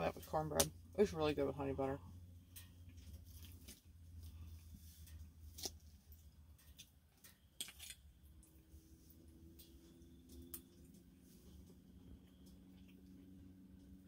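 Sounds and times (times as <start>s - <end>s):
faint low hum: 0.0s - 14.0s.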